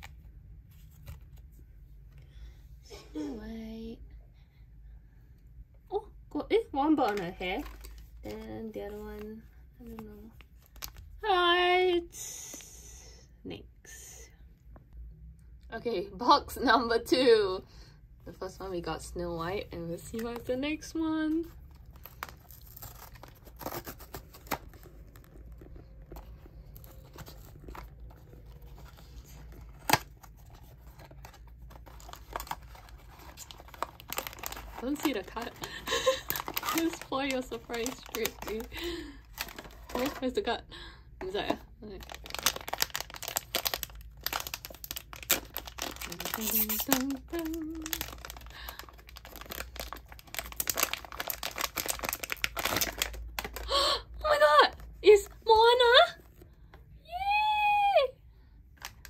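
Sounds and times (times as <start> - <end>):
paper wrapper rustling: 7.0 - 11.1, 21.3 - 40.5, 41.3 - 53.8
foil bag crinkling and tearing: 10.6 - 11.1, 21.4 - 40.4, 41.3 - 54.4.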